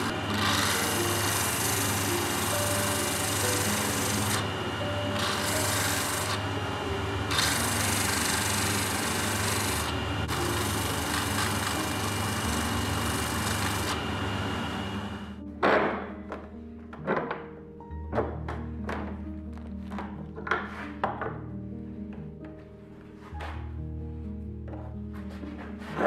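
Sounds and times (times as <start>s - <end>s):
wood being sanded: 0.0s - 15.2s
motor hum: 0.0s - 15.4s
loud thunk: 15.6s - 16.2s.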